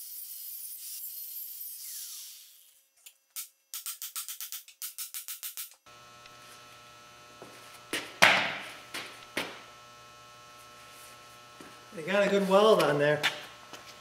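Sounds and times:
electrical hum: 5.9s - 14.0s.

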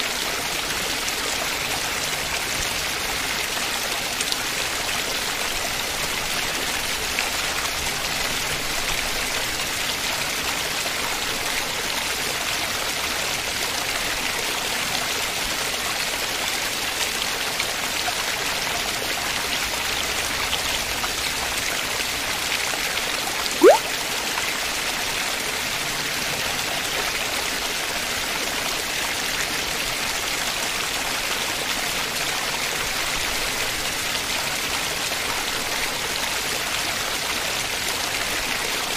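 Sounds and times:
short rising whistle: 23.6s - 23.9s.

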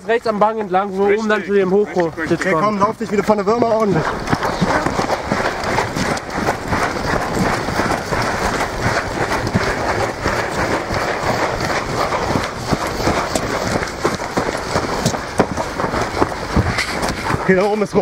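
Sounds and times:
footsteps running on gravel: 0.0s - 18.0s.

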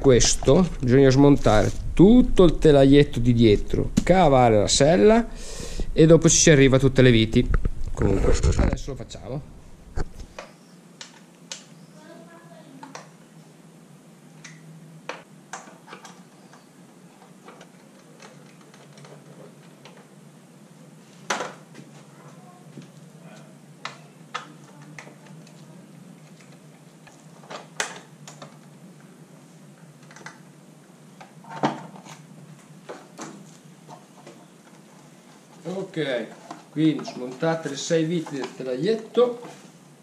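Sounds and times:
low steady hum: 0.0s - 15.5s.

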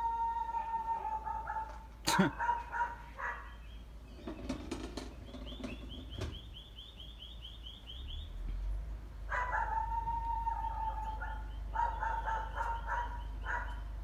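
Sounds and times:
bird chirping rapidly: 2.3s - 8.4s, 11.1s - 14.0s
dog whining: 9.3s - 13.8s.

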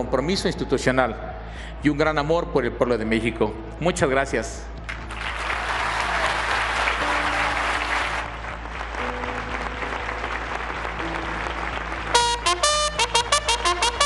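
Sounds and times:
audience applauding: 4.8s - 14.0s
music with short clipped notes: 12.0s - 14.0s.

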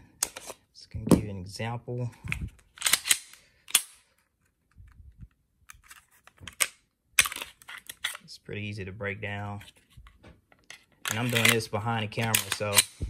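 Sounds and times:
pistol slide clicks and clacks: 2.8s - 4.0s, 11.1s - 11.6s, 12.2s - 13.0s.

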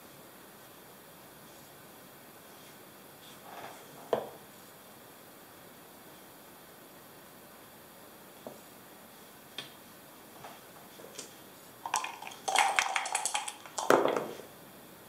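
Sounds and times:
dice rattling in a cup: 11.9s - 14.3s
dice clattering on board: 11.9s - 14.4s.

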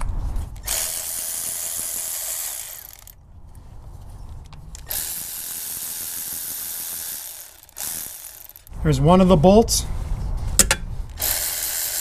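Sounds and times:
power ratchet spinning: 0.6s - 3.2s, 4.8s - 8.8s, 11.1s - 12.0s.

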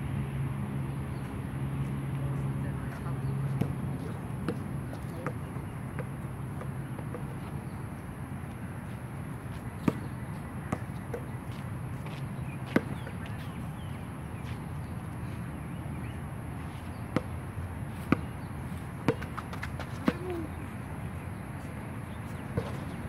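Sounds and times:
basketball bouncing on hard court: 4.4s - 5.4s, 9.8s - 11.3s, 19.0s - 20.3s.

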